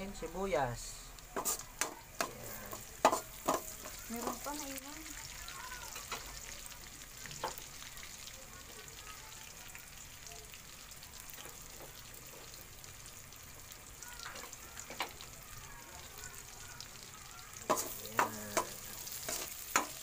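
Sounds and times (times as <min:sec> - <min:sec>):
food sizzling in hot oil: 0:00.0 - 0:20.0
sharp knocks on wok: 0:03.0 - 0:04.4, 0:17.6 - 0:18.8.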